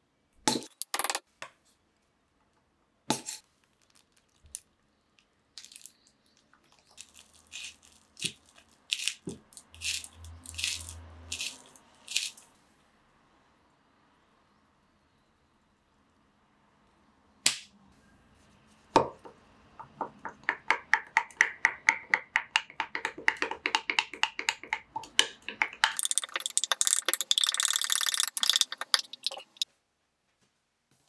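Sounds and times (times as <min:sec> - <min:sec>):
stick stirring drink in glass: 0:21.3 - 0:29.6.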